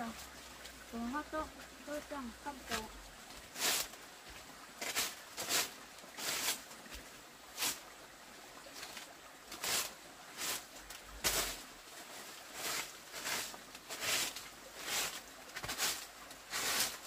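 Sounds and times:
broom sweeping dirt: 0:02.6 - 0:04.0, 0:04.8 - 0:07.9, 0:08.8 - 0:17.0.

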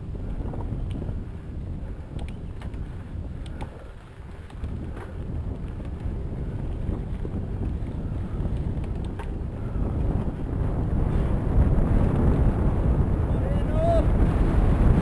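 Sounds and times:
wind rushing over microphone: 0:00.0 - 0:15.0
bike rattle: 0:00.3 - 0:11.3.

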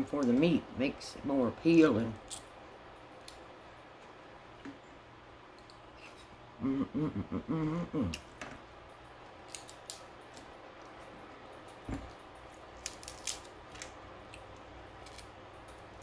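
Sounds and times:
crab shell cracking: 0:02.2 - 0:02.6, 0:03.2 - 0:03.5, 0:09.3 - 0:11.0, 0:11.6 - 0:16.0
person humming: 0:06.6 - 0:08.3.

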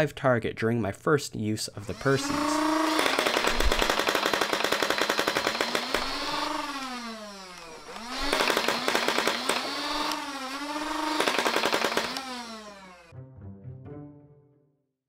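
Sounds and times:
flywheel motor whine: 0:01.9 - 0:13.1
toy blaster rapid firing clatter: 0:01.9 - 0:13.1.

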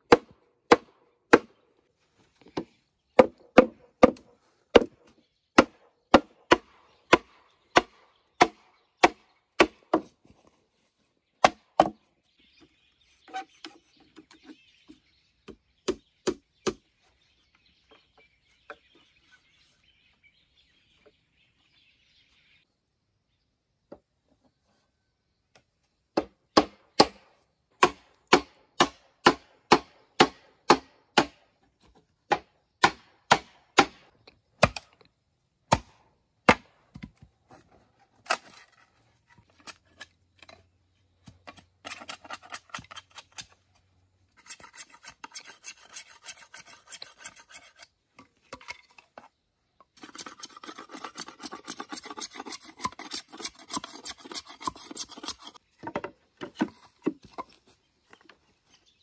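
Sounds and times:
blade chopping bamboo: 0:00.1 - 0:01.5, 0:03.2 - 0:04.9, 0:05.6 - 0:10.1, 0:11.4 - 0:12.0, 0:27.8 - 0:31.4, 0:32.3 - 0:34.9, 0:35.7 - 0:37.2
rasping scraping of bamboo: 0:37.4 - 0:40.5, 0:41.5 - 0:55.7.

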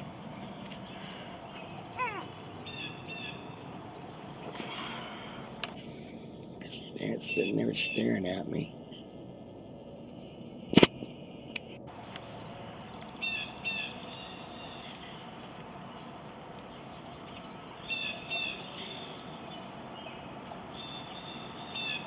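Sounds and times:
birds chirping: 0:00.0 - 0:22.0
outdoor background hiss: 0:00.0 - 0:22.0
sharp click: 0:10.7 - 0:11.8.

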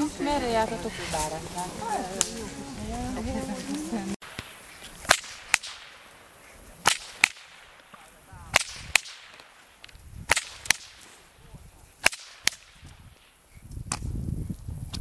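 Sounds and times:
whip cracking: 0:04.2 - 0:06.0, 0:06.8 - 0:11.1, 0:12.0 - 0:13.0.

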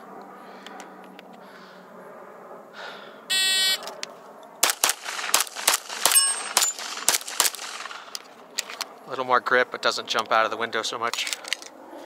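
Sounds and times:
rapid pistol shots: 0:04.6 - 0:08.1.

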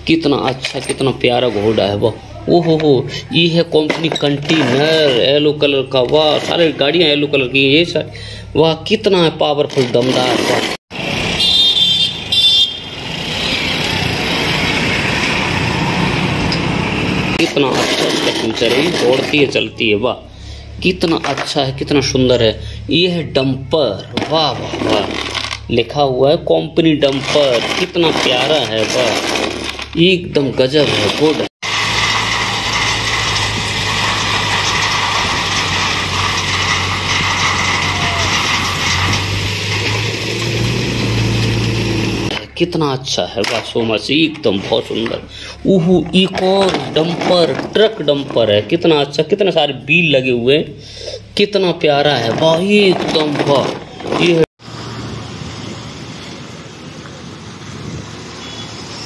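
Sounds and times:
stones sliding and rumbling: 0:03.8 - 0:05.3, 0:24.2 - 0:25.7, 0:27.1 - 0:30.0, 0:30.8 - 0:41.6, 0:46.0 - 0:48.7, 0:52.2 - 0:54.5
truck driving past: 0:10.9 - 0:17.5, 0:31.6 - 0:42.4, 0:54.6 - 0:59.0
diesel truck engine running: 0:10.9 - 0:17.7, 0:18.4 - 0:42.4
short high horn toots: 0:11.4 - 0:12.9.

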